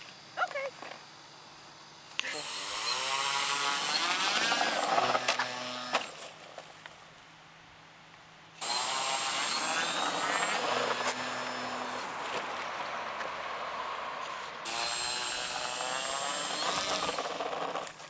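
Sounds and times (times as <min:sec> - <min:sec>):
model plane motor whining: 0:02.2 - 0:06.2, 0:08.6 - 0:13.2, 0:14.2 - 0:18.0.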